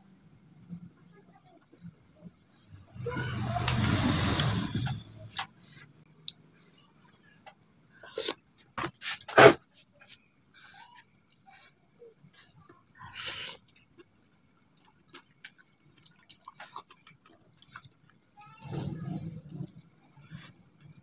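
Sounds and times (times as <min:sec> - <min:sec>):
slurping noodles: 0:03.4 - 0:05.4.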